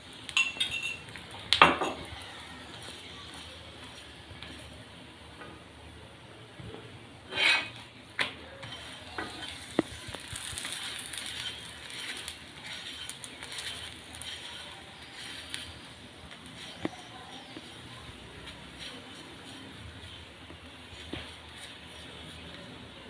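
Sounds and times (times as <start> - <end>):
flatbread sizzling on hot pan: 0.0 - 4.9, 7.2 - 23.0
metal spatula scraping: 7.3 - 7.9, 8.6 - 22.8.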